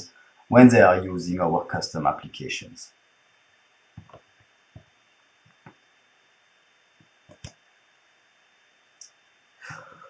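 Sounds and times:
room hiss: 0.0 - 10.0
faint short clicks: 7.3 - 7.6.

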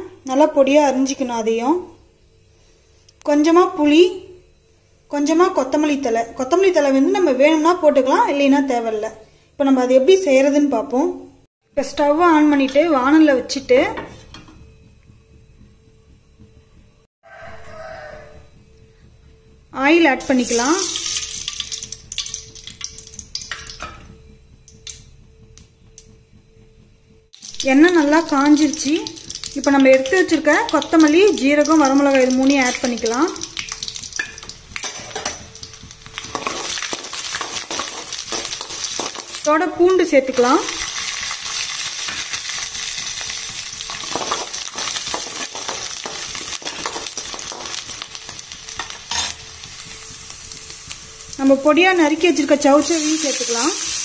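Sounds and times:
faint steady hum: 0.0 - 54.0
oil sizzling and crackling: 20.2 - 23.9, 27.4 - 54.0
metal spoon stirring in pan: 44.0 - 47.8.

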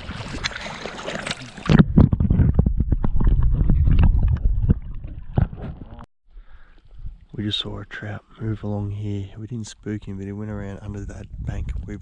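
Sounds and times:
shallow water splashing: 0.0 - 5.8.

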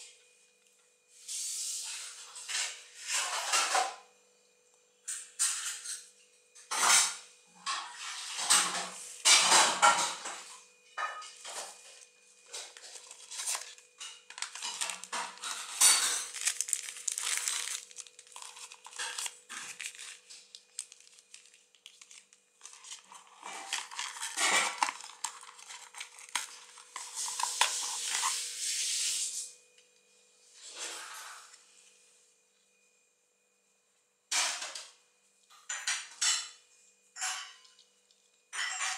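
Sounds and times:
plastic wrapping crinkling: 11.5 - 28.7.

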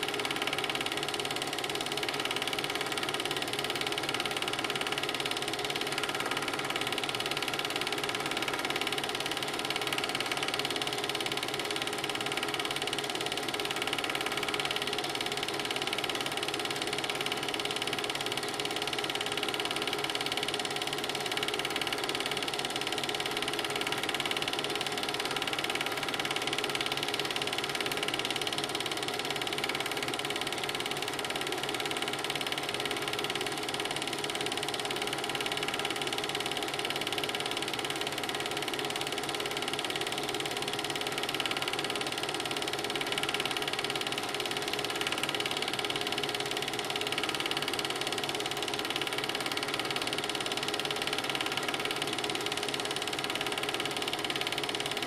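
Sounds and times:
film projector rattling: 0.0 - 55.0.

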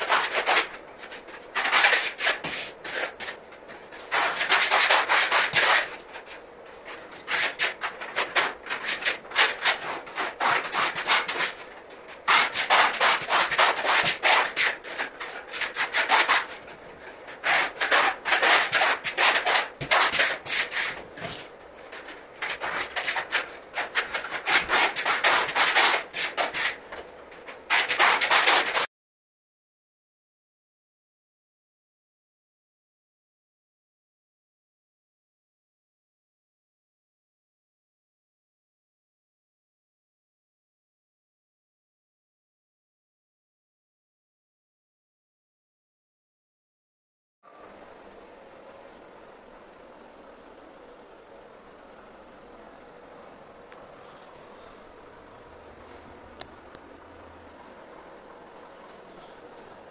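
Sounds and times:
sanding block rubbing plaster: 0.0 - 3.4, 4.0 - 6.4, 7.3 - 16.7, 17.3 - 26.9, 27.7 - 28.9.

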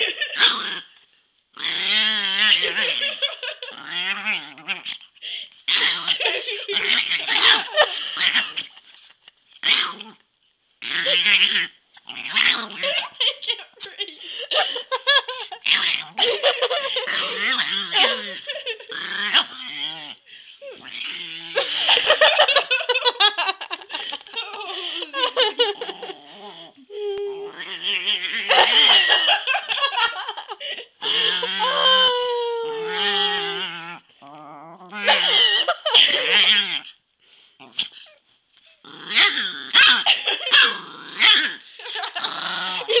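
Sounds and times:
small dog growling and snarling: 0.0 - 1.0, 1.6 - 5.1, 5.7 - 9.0, 9.6 - 10.2, 10.8 - 13.2, 15.6 - 22.1, 25.7 - 29.2, 31.2 - 32.0, 32.7 - 37.0, 37.6 - 43.0
people laughing: 2.6 - 3.8, 6.1 - 6.8, 12.8 - 15.6, 16.2 - 18.9, 21.6 - 26.3, 28.5 - 32.4, 35.0 - 36.3, 40.0 - 40.7, 41.8 - 43.0.

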